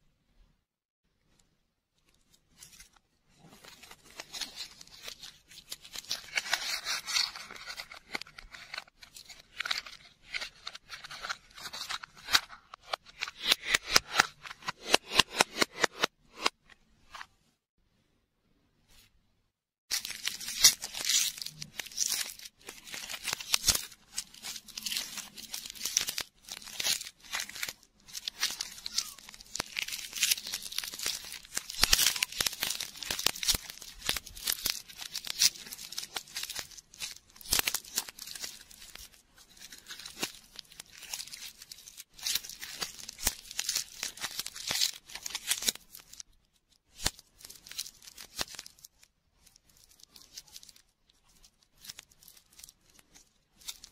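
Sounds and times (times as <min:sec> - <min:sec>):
foil wrapper crinkling and tearing: 0:02.6 - 0:14.6, 0:19.9 - 0:53.9.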